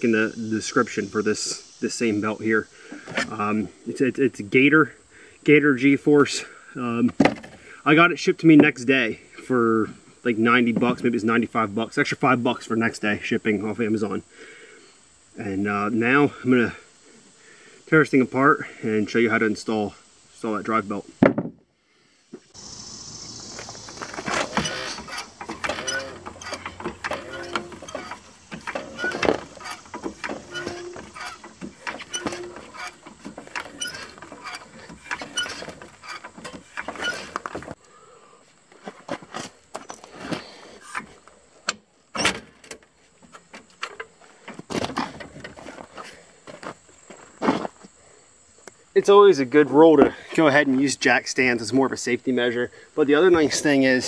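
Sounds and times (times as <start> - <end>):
floor jack pumping clicks and clanks: 23.5 - 37.8.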